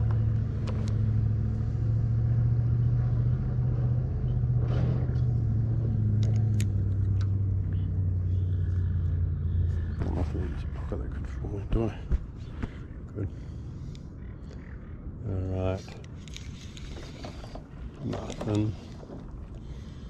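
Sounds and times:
faint clicks: 13.9 - 14.8.

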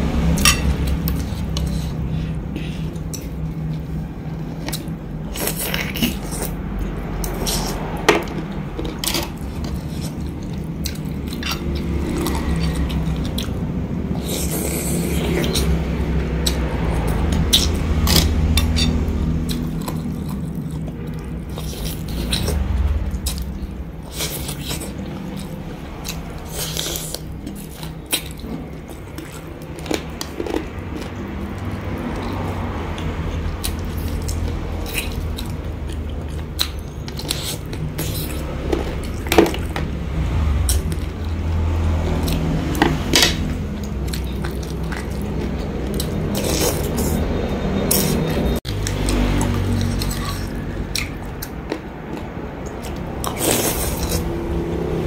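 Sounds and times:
low background hum: 0.0 - 55.0
chopsticks and spoon on ceramic bowl: 0.4 - 2.0
wet chewing and mouth clicks: 4.6 - 54.7.

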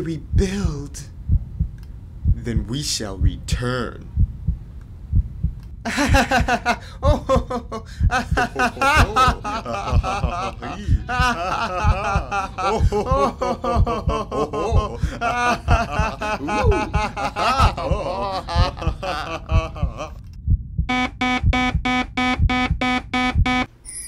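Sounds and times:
low throbbing pulse: 0.0 - 23.7
theatrical laughter: 5.9 - 20.2.

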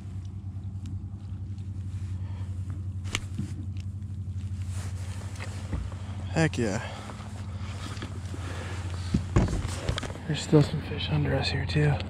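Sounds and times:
electric trolling motor hum: 0.0 - 12.0.

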